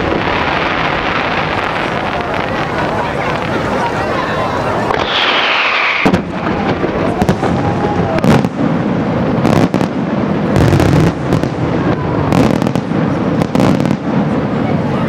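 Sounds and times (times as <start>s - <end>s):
low rumbling booms: 0.0s - 14.9s
firework bangs and crackling: 0.0s - 15.0s
firework whistle falling: 4.3s - 8.5s.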